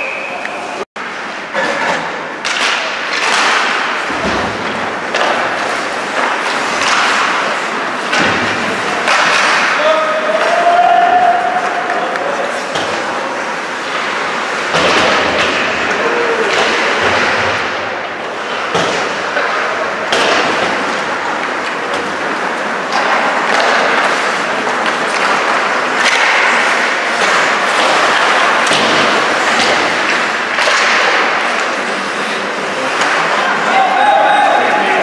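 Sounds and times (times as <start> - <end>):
sticks and puck knocking: 2.4 - 10.9
skate blades scraping ice: 2.5 - 9.8.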